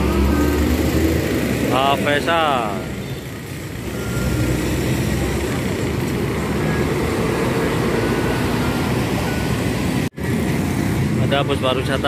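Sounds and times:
city traffic noise: 0.0s - 12.0s.

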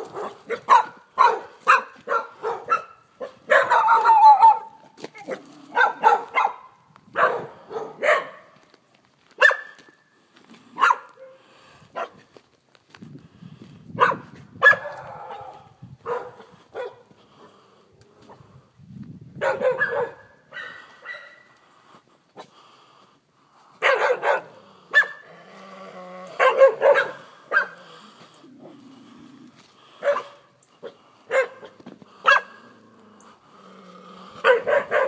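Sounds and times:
dog barking: 0.0s - 8.6s, 9.4s - 9.8s, 10.8s - 12.2s, 14.0s - 17.1s, 19.4s - 21.5s, 23.8s - 25.3s, 26.4s - 27.8s, 30.0s - 32.7s, 34.4s - 35.0s.

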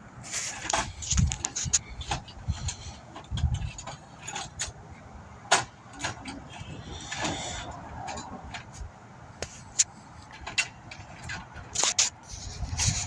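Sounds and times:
metal tools clinking: 0.6s - 4.8s.

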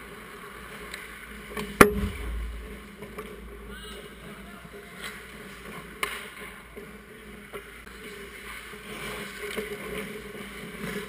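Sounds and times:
steady hum: 1.8s - 3.6s
skate blades scraping ice: 5.0s - 11.0s.

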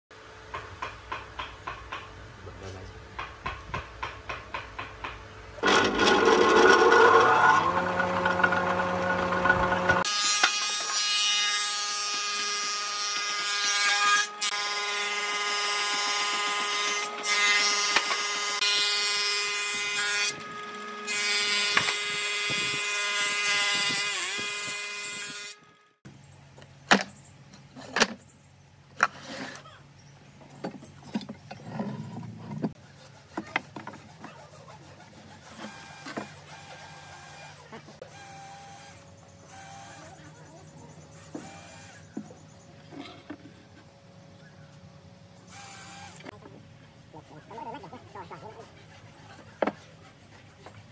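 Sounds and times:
thickness planer whining: 5.6s - 25.8s, 32.5s - 40.3s.

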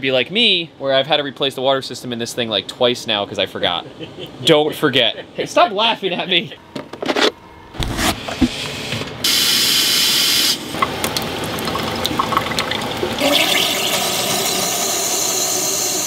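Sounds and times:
loud compressed air hiss: 8.2s - 10.7s, 13.4s - 16.0s
air and water spitting from faucet: 11.1s - 16.0s.

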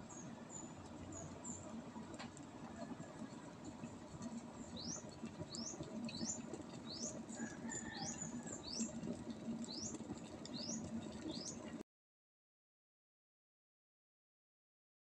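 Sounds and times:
electric kettle boiling water: 0.0s - 11.8s.

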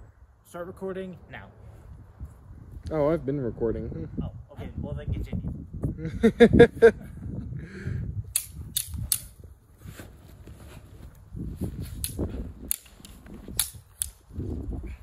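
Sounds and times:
sticks clacking together: 12.0s - 14.2s.

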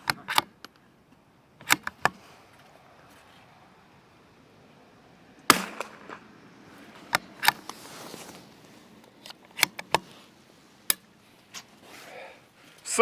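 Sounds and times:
rifle shot: 5.5s - 6.3s.

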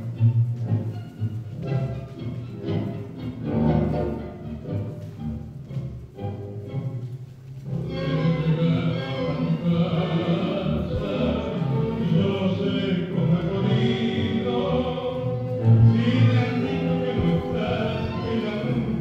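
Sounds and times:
orchestral tango music: 0.0s - 19.0s
person singing: 7.9s - 19.0s.

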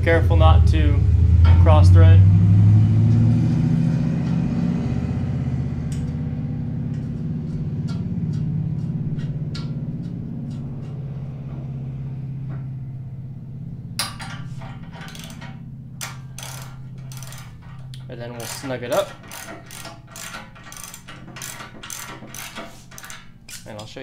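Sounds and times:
low engine rumble: 0.0s - 24.0s
metal bolts clicking: 6.8s - 11.2s, 14.0s - 24.0s
ratchet wrench bursts: 14.0s - 24.0s.

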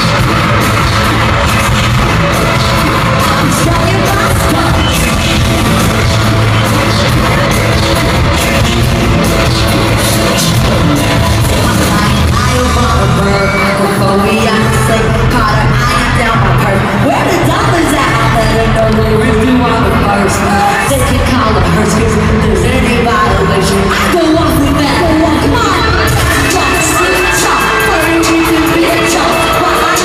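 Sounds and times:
heavy bass beat: 0.0s - 13.4s
pop song over arena speakers: 0.0s - 30.0s
woman singing: 2.7s - 8.7s, 9.4s - 30.0s.

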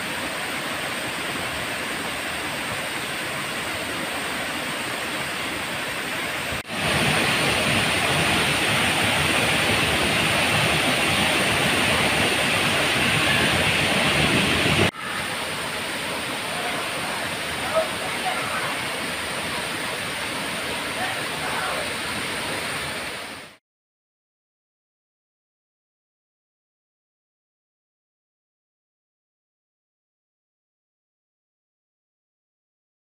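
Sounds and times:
heavy rain falling: 1.3s - 23.6s.

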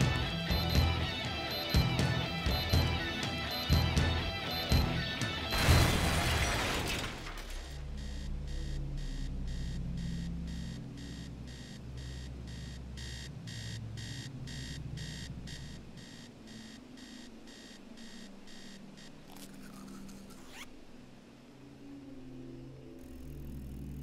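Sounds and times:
alarm clock beeping: 0.0s - 5.9s, 7.9s - 19.2s
low drone: 7.8s - 16.1s.

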